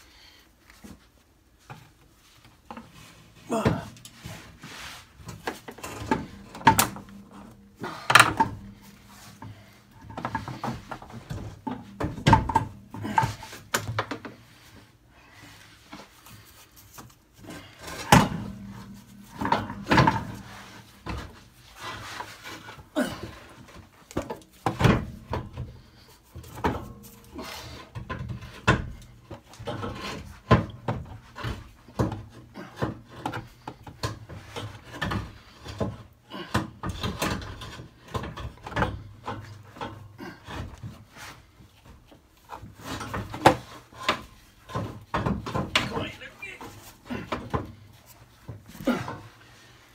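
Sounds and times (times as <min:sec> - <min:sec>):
metal knocks and clunks: 0:05.2 - 0:14.4, 0:17.8 - 0:22.3.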